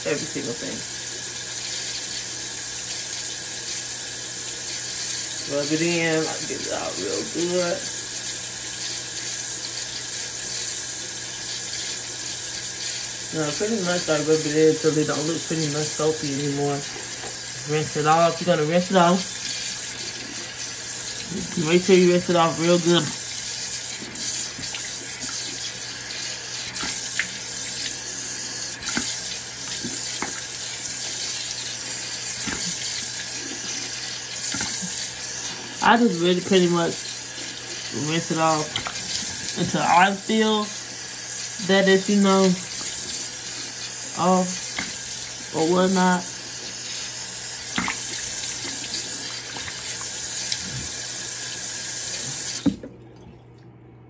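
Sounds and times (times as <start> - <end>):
water splashing on face: 16.7 - 36.0, 44.6 - 53.3
tap running into sink: 28.8 - 30.5, 32.4 - 33.0, 47.7 - 50.6, 52.3 - 53.0.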